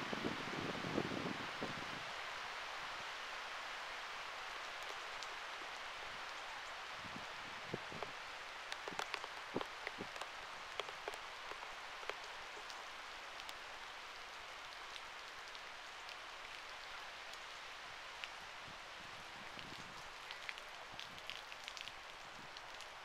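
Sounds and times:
steady rain hissing: 0:00.0 - 0:23.0
raindrops tapping on housing: 0:07.1 - 0:13.6.

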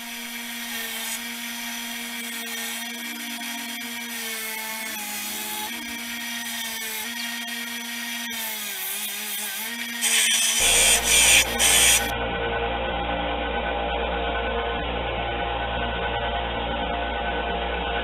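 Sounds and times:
belt sander motor whining: 0:00.0 - 0:12.1.

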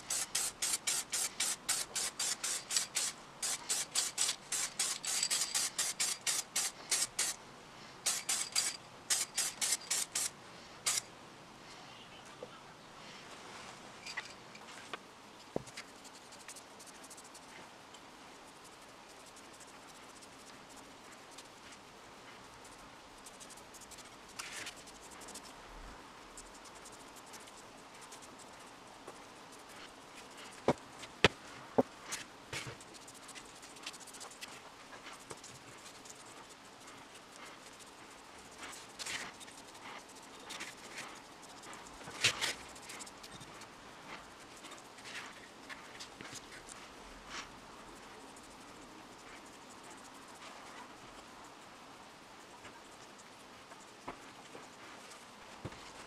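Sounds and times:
paintbrush scratching metal parts: 0:00.0 - 0:07.4, 0:08.0 - 0:11.1, 0:15.6 - 0:17.5, 0:18.4 - 0:25.6, 0:26.3 - 0:31.2, 0:32.1 - 0:51.6.

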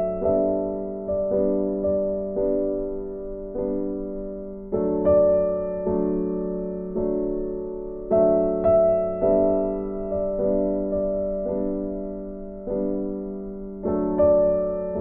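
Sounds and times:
gentle piano chords: 0:00.0 - 0:15.0.

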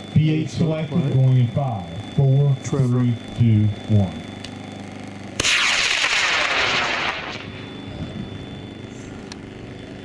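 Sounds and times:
rocket motor hissing roar: 0:05.4 - 0:07.6.

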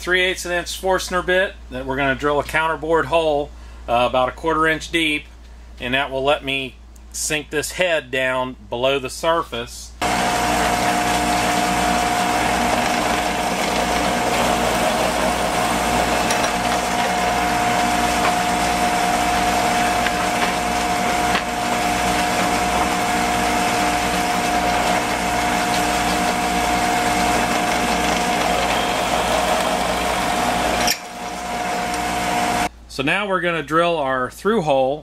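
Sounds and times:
drill bit boring into wood: 0:10.0 - 0:32.7
drill press motor whine: 0:10.0 - 0:32.7.

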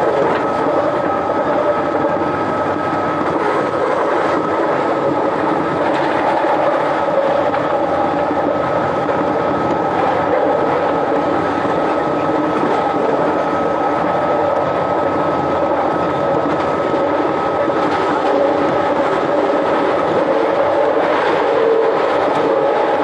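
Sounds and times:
train running with rumble: 0:00.0 - 0:23.0.

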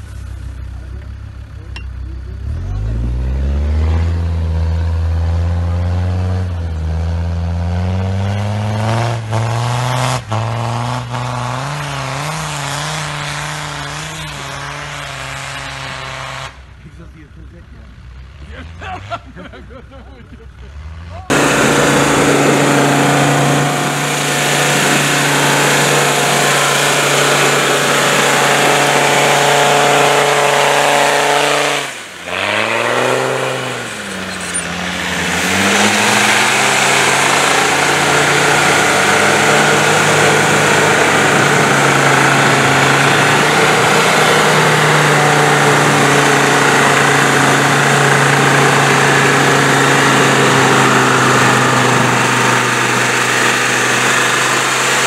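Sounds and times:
diesel engine running hard: 0:00.0 - 0:55.0
wheels spinning in snow: 0:21.2 - 0:55.0.

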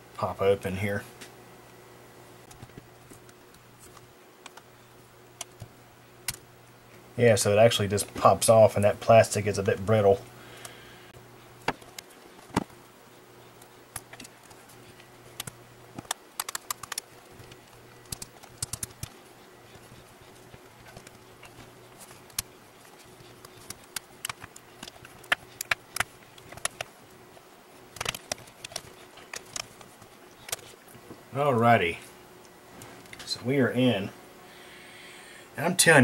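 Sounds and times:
faint steady hum: 0:00.0 - 0:36.0
plastic clips snapping: 0:15.4 - 0:19.1, 0:23.4 - 0:26.9, 0:27.9 - 0:30.7.

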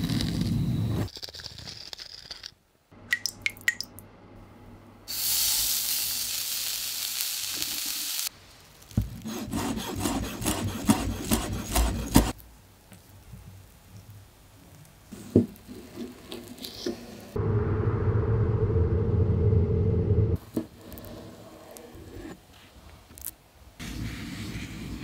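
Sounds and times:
steady hiss: 0:05.1 - 0:08.9.

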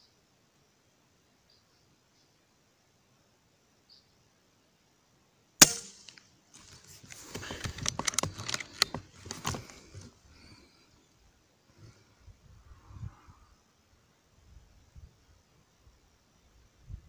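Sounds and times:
air rifle shot crack: 0:05.6 - 0:06.2
clicking and rustling handling noise: 0:06.5 - 0:10.2.

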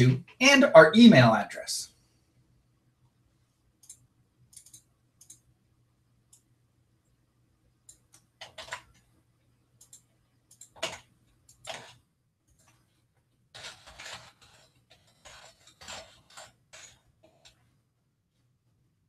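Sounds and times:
faint steady hum: 0:00.0 - 0:19.0
keyboard and mouse clicks: 0:03.8 - 0:05.5, 0:07.8 - 0:09.1, 0:09.8 - 0:12.9, 0:13.6 - 0:17.6.

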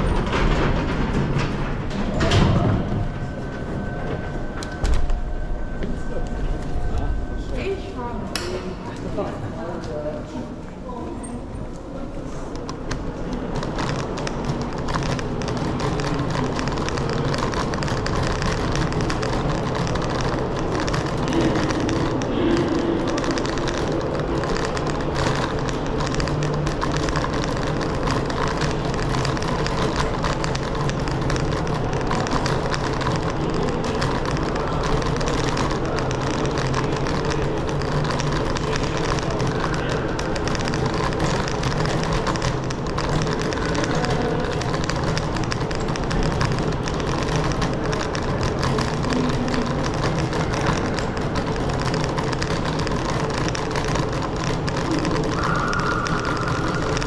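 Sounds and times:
low hum: 0:00.0 - 0:09.5
scooter riding rumble: 0:11.0 - 0:57.0.

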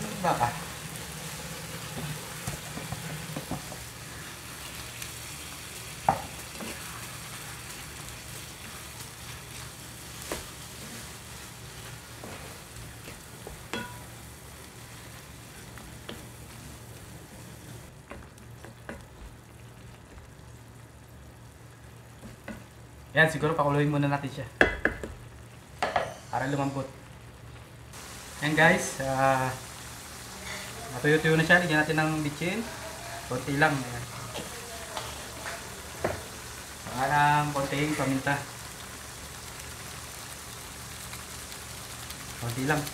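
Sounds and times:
meat sizzling in a frying pan: 0:00.0 - 0:42.9
wooden spatula knocking on pan: 0:01.9 - 0:03.9, 0:24.6 - 0:25.2, 0:36.0 - 0:36.3.

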